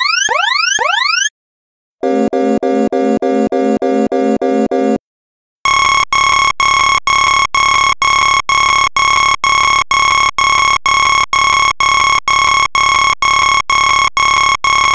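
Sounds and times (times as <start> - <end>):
alarm clock beeping: 0.0 - 1.3.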